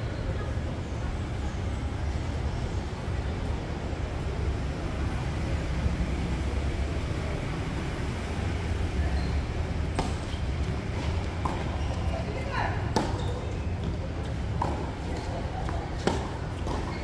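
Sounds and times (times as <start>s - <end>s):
tennis ball strike: 9.9s - 11.8s, 12.9s - 13.2s, 14.5s - 16.9s.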